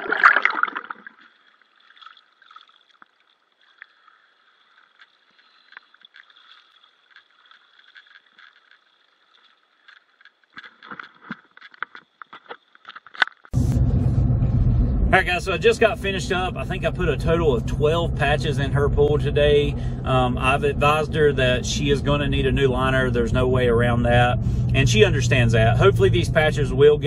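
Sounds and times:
water sloshing and dripping: 0.0s - 13.5s.

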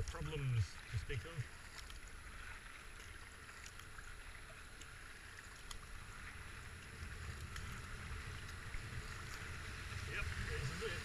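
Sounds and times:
paddle splashes: 0.0s - 11.0s
rushing river water: 0.0s - 11.0s
wind rumble on microphone: 5.8s - 11.0s.

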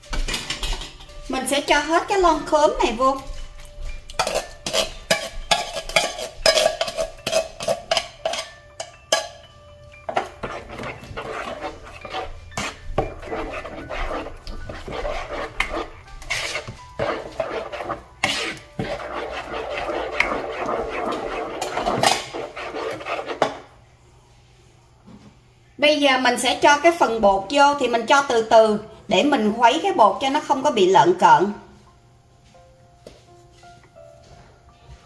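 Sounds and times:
utensil scraping a container: 4.2s - 8.5s, 10.1s - 23.6s.

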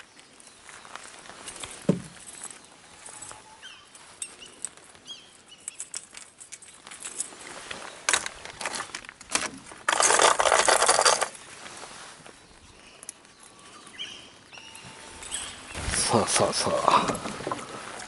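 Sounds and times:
lures clinking in plastic box: 8.1s - 11.4s.

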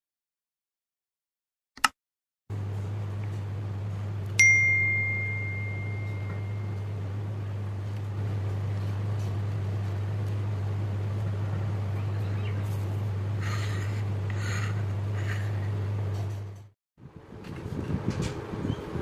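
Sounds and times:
steady low hum: 2.5s - 19.0s
bright bell ding: 4.4s - 6.9s.

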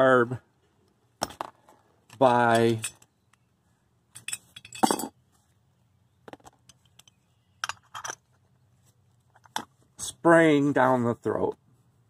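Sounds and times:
metal parts clinking on bench: 4.1s - 5.2s, 6.6s - 8.3s.

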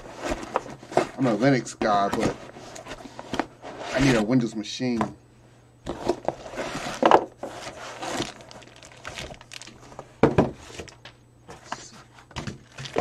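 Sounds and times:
cardboard scraping and rustling: 0.0s - 4.5s, 5.9s - 11.0s
plastic wrapping crinkling: 5.9s - 10.0s, 12.6s - 13.0s.

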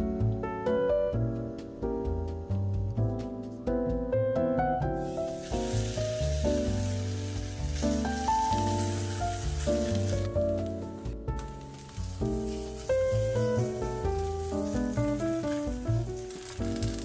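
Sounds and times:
piano music: 0.0s - 17.0s
batter sizzling in hot oil: 5.0s - 17.0s.

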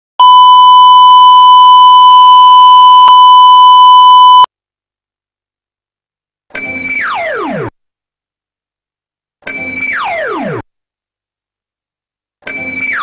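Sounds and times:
loud test tone: 0.2s - 4.5s.

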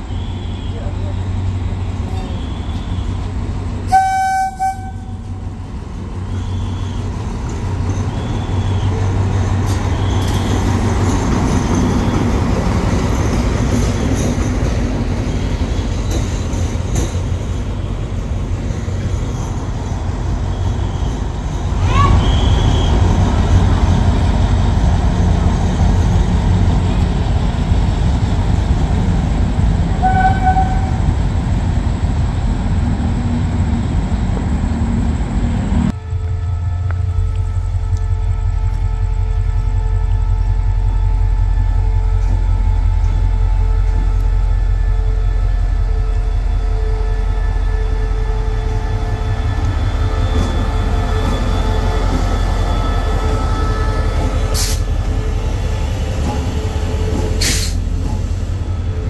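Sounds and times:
train engine rumble: 0.0s - 59.0s
train horn blast: 3.9s - 5.3s, 30.0s - 31.1s, 35.9s - 55.7s.

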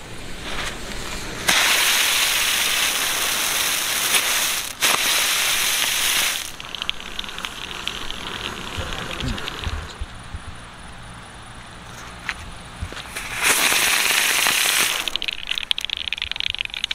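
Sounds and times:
firework spinner hissing: 0.0s - 16.9s
faint crackling ticks: 2.9s - 10.7s, 11.9s - 16.9s.

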